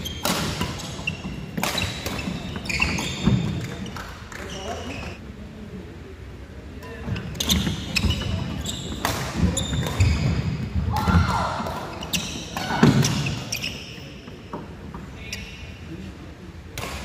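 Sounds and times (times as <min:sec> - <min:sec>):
shoe squeaks: 0:00.0 - 0:05.2, 0:07.0 - 0:10.6, 0:11.9 - 0:14.5, 0:15.2 - 0:15.8
racket striking shuttlecock: 0:01.6 - 0:02.4.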